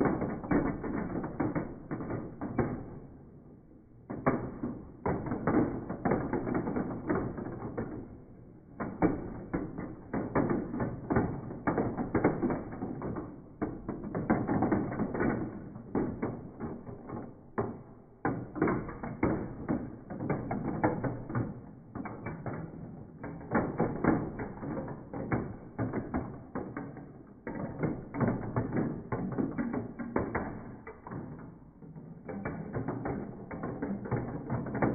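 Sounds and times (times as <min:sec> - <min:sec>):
marbles clattering through marble run: 0:27.6 - 0:34.9.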